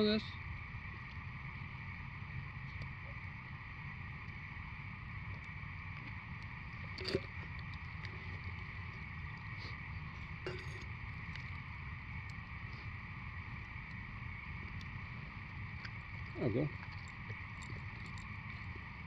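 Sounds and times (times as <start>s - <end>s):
steady low background hum: 0.0s - 19.0s
thermos and cup knocking: 6.9s - 7.4s, 10.4s - 10.9s.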